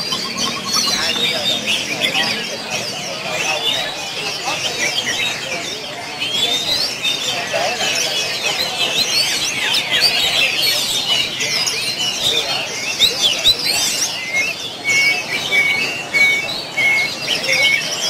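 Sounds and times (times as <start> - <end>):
songbirds chirping chorus: 0.0 - 18.0.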